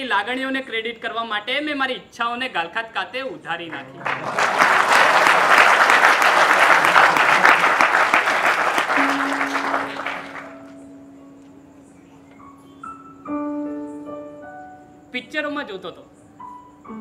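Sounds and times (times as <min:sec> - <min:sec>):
audience applauding: 0:03.8 - 0:10.7
soft sustained keyboard notes: 0:08.9 - 0:17.0.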